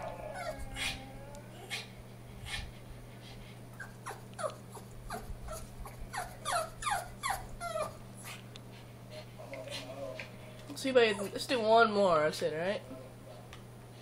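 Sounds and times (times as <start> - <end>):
dog whining yelps: 0.0 - 1.9, 3.8 - 8.0.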